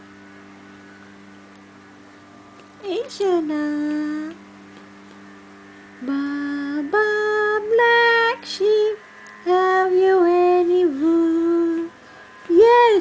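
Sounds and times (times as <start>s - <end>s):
woman humming a slow tune: 2.8s - 4.4s, 6.0s - 13.0s.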